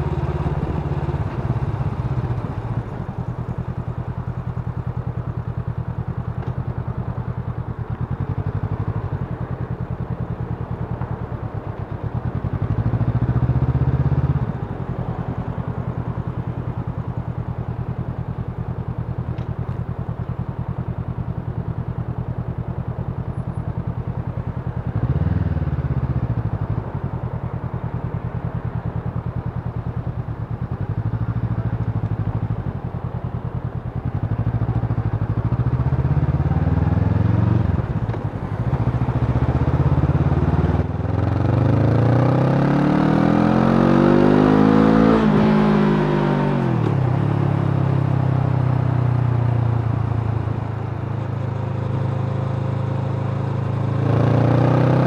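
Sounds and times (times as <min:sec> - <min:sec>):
motorcycle engine revving: 0:00.0 - 0:06.5, 0:24.8 - 0:26.8, 0:34.0 - 0:50.6, 0:51.3 - 0:55.0.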